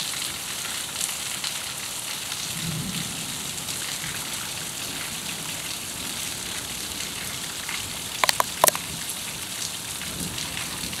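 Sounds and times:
sharp taps: 8.2 - 8.8.

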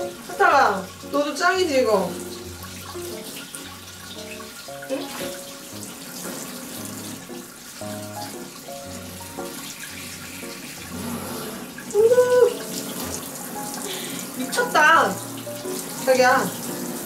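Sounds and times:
light background music: 0.0 - 17.0
water running from shower head: 0.0 - 17.0.

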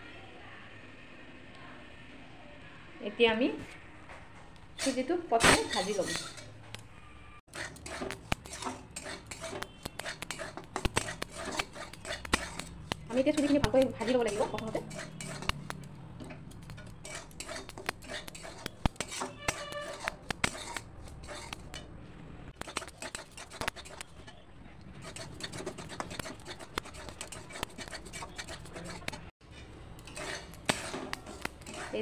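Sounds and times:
metal spoon scraping metal pan: 4.8 - 6.7, 7.5 - 21.9, 22.6 - 24.4, 25.0 - 32.0.

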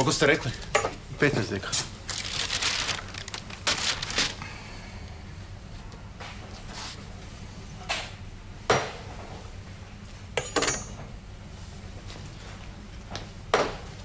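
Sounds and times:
metallic clank and ring: 10.4 - 11.0.

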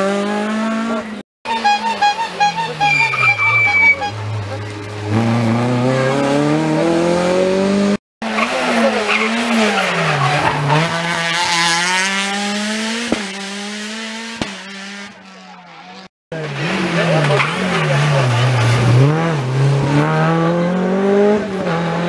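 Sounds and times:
rally car engines revving: 0.0 - 22.0
tyre squeal: 1.8 - 4.2.

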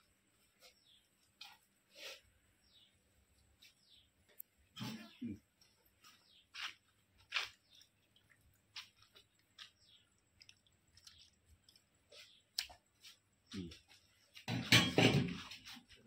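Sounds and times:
ladle squelching in thick sauce: 7.2 - 13.3.

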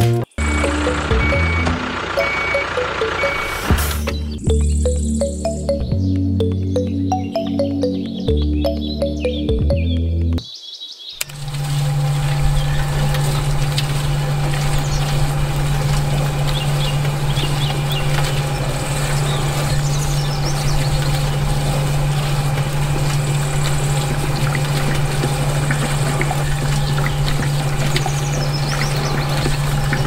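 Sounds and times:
wet concrete pouring: 11.3 - 30.0.

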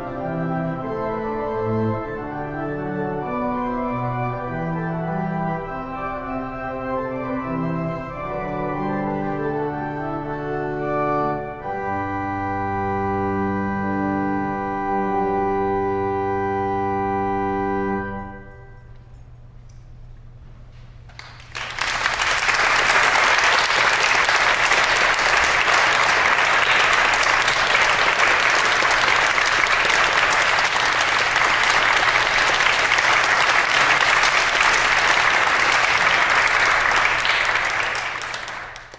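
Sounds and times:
pipe organ chord: 0.0 - 19.2, 22.4 - 38.9
audience applause: 21.2 - 38.9.

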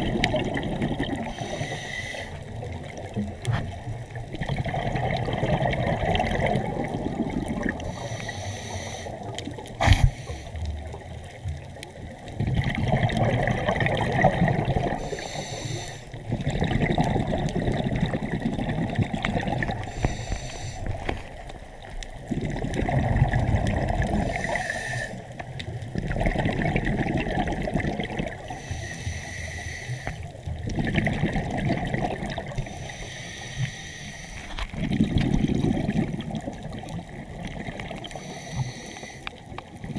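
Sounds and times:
water washing and trickling: 0.0 - 1.5, 2.3 - 8.2, 9.2 - 24.6, 25.2 - 28.7, 30.2 - 33.0, 34.3 - 38.3.

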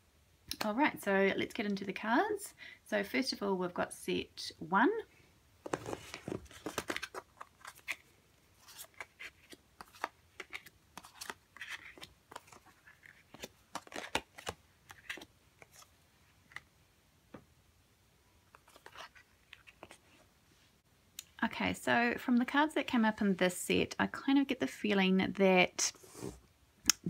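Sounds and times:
cards tapping and sliding on cloth: 5.6 - 8.0.

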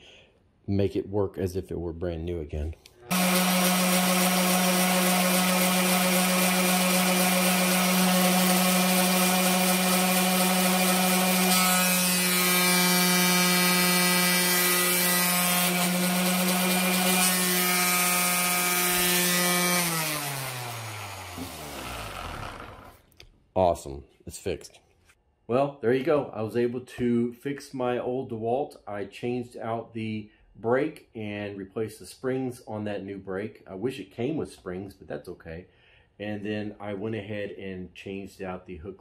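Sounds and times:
orbital sander running: 3.1 - 23.0.

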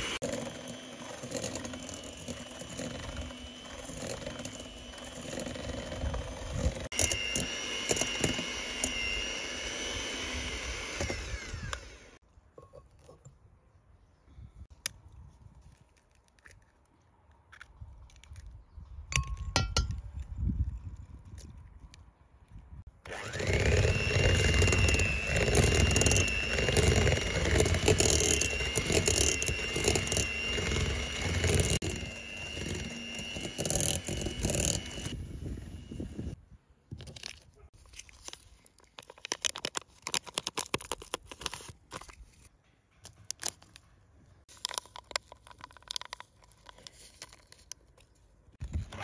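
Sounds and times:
stand mixer motor whining: 0.0 - 12.2, 23.1 - 36.4.

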